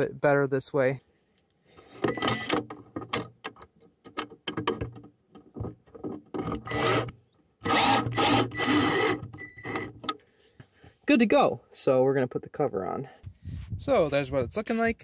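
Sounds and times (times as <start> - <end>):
cordless drill motor whining: 6.6 - 10.0.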